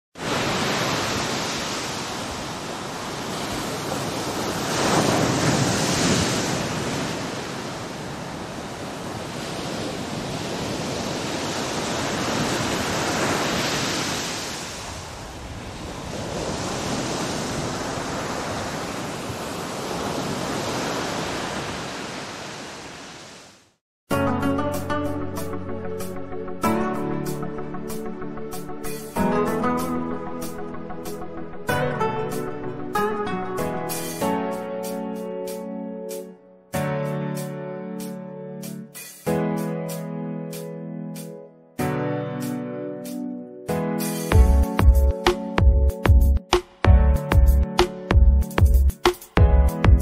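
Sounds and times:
ocean waves washing in: 0:00.2 - 0:23.8.

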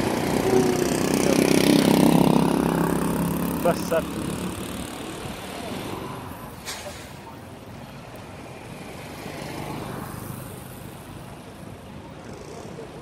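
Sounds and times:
car approaching slowly: 0:00.0 - 0:06.6
low traffic rumble: 0:00.0 - 0:13.0.

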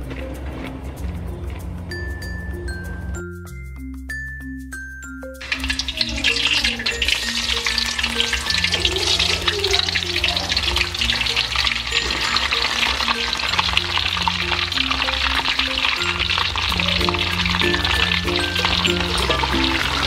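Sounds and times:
deep-frying sizzle in oil: 0:05.4 - 0:20.0.

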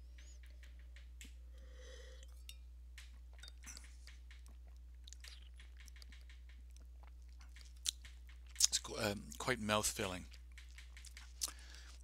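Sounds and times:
mouth clicks and lip smacks: 0:03.0 - 0:09.4, 0:10.3 - 0:11.6.

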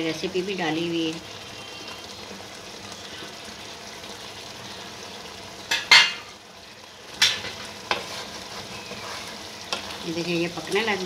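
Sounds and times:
gravy sizzling and bubbling: 0:00.0 - 0:11.0
clinks against the pan: 0:05.7 - 0:06.3.

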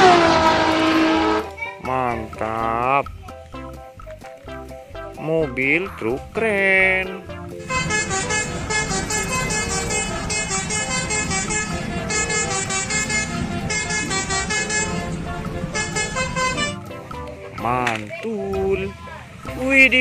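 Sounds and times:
truck horn blasts: 0:00.0 - 0:01.6, 0:07.6 - 0:16.8
truck engines rumbling: 0:00.0 - 0:04.8, 0:05.4 - 0:20.0.

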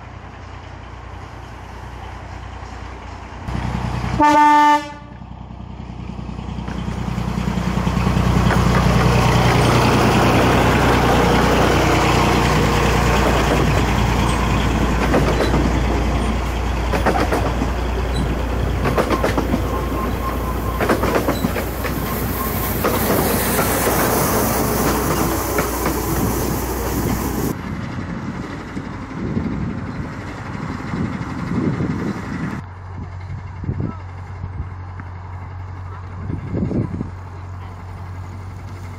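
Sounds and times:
diesel locomotive hum: 0:00.0 - 0:38.9
wheels clicking over rail joints: 0:05.6 - 0:38.9
wheel squeal: 0:19.1 - 0:25.8.

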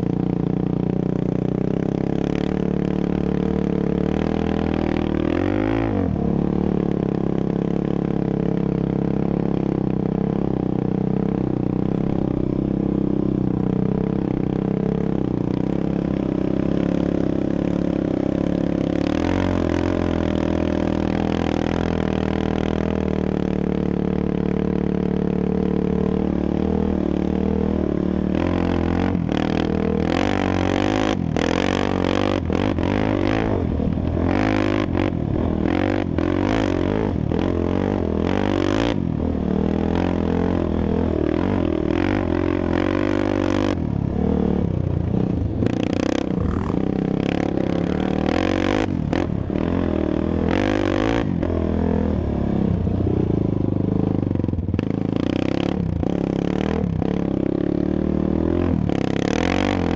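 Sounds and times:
quad engine revving: 0:00.8 - 0:13.0, 0:13.6 - 0:59.9.

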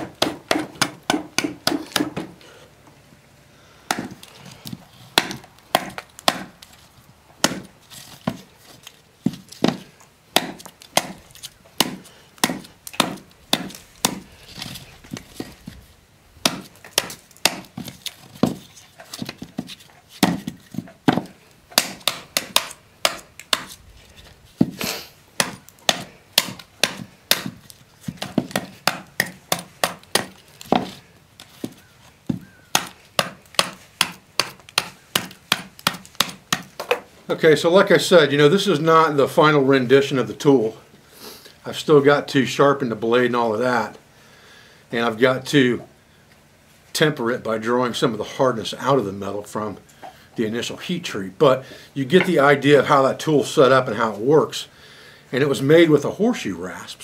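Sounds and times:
adze chopping wood: 0:00.0 - 0:02.4, 0:03.9 - 0:06.7, 0:07.4 - 0:08.5, 0:09.2 - 0:15.8, 0:16.4 - 0:23.8, 0:24.6 - 0:37.1.

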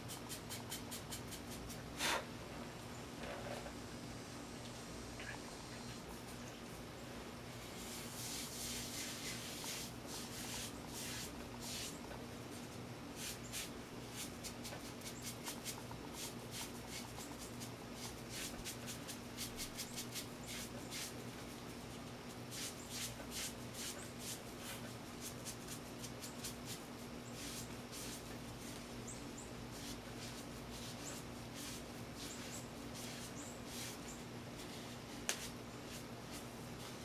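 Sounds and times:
faint steady hum: 0:00.0 - 0:37.0
sponge scratching on ceramic: 0:29.7 - 0:36.9.

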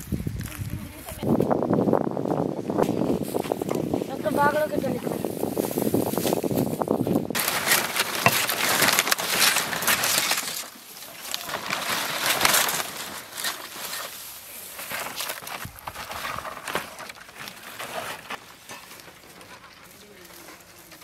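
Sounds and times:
palm fronds rustling and crackling: 0:00.0 - 0:21.0
sickle cutting and tearing strokes: 0:07.4 - 0:21.0.

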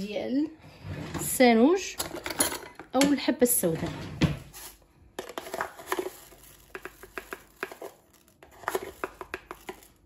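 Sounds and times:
seeds rattling in plastic jar: 0:05.3 - 0:10.0.

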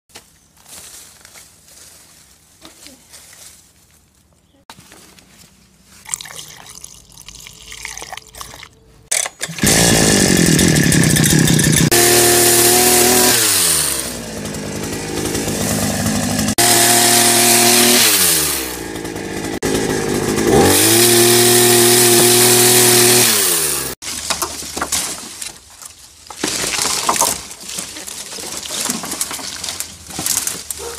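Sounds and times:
rustling leafy branches: 0:00.1 - 0:06.1, 0:24.0 - 0:30.9
liquid trickling into funnel: 0:06.0 - 0:08.8
pole saw engine revving: 0:09.4 - 0:24.0.

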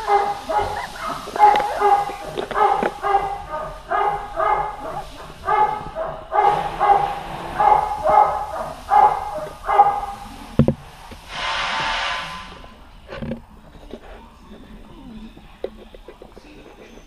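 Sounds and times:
puppies yelping: 0:00.0 - 0:10.1.

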